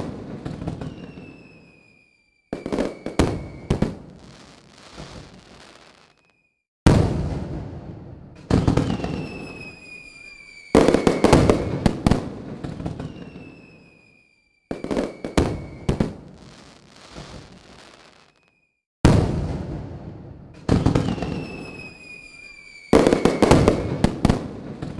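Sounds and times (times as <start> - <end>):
fireworks bangs and crackles: 0.0 - 24.9
whistles dropping in pitch: 0.8 - 3.8, 8.8 - 11.5, 12.9 - 16.0, 21.1 - 23.9.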